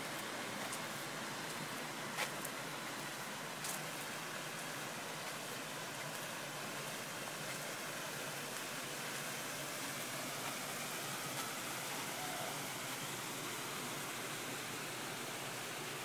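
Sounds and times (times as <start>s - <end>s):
running water rushing: 0.0s - 16.0s.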